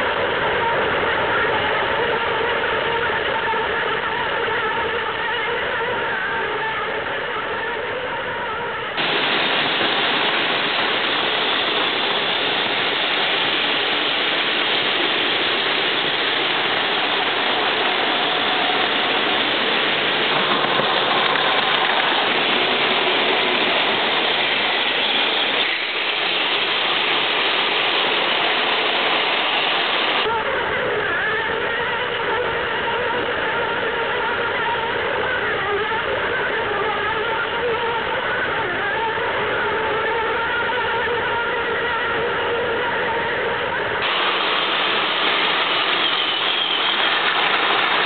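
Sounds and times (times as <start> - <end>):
toy trains whirring and rattling: 8.5 - 30.4, 44.0 - 48.0.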